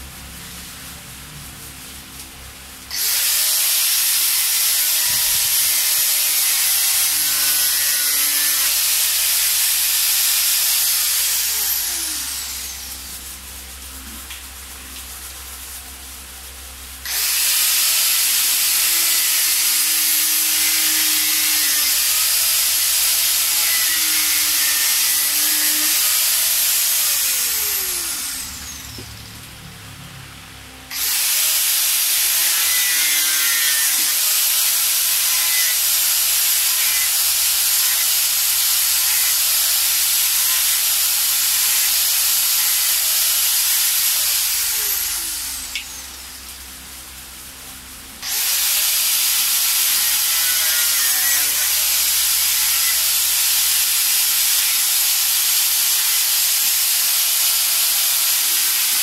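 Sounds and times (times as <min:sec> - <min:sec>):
handheld grinder cutting: 0:02.9 - 0:13.4, 0:17.0 - 0:29.1, 0:30.9 - 0:46.8, 0:48.2 - 0:59.0
grinder motor whine spinning down: 0:11.3 - 0:13.2, 0:23.4 - 0:29.4.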